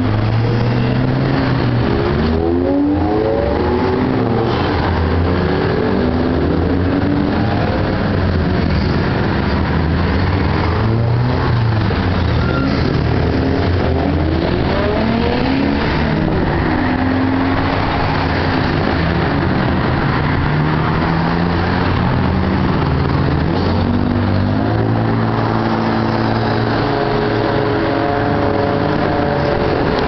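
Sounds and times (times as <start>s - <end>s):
cars driving past: 0.0s - 30.0s
low engine hum and tyre noise: 0.0s - 30.0s.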